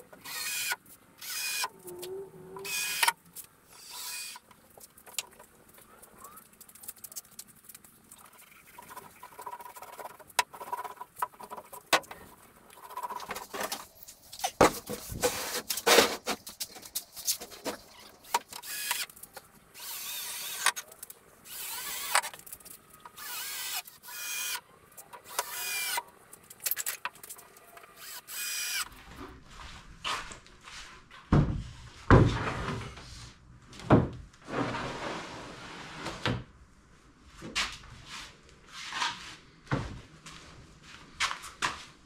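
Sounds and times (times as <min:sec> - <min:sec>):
cordless drill boring into wood: 0:00.2 - 0:01.7, 0:02.6 - 0:03.1, 0:03.8 - 0:04.4, 0:18.6 - 0:19.0, 0:19.8 - 0:20.8, 0:21.5 - 0:22.3, 0:23.2 - 0:24.6, 0:25.3 - 0:26.0, 0:28.0 - 0:28.9.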